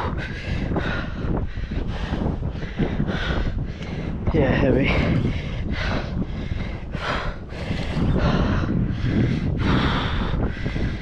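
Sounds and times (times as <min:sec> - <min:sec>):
wind buffeting microphone: 0:00.0 - 0:11.0.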